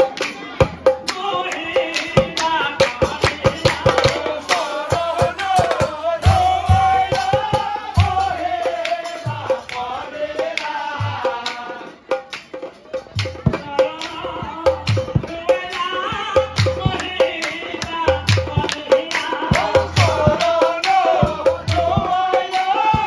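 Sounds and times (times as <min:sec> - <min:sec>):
sharp hand claps: 0:00.0 - 0:05.9, 0:08.8 - 0:10.0, 0:10.6 - 0:10.8, 0:11.4 - 0:11.7, 0:12.3 - 0:13.4, 0:16.6 - 0:23.0
men singing a chant: 0:00.0 - 0:23.0
deep booming drums: 0:04.9 - 0:08.7, 0:13.2 - 0:20.6, 0:21.2 - 0:22.3.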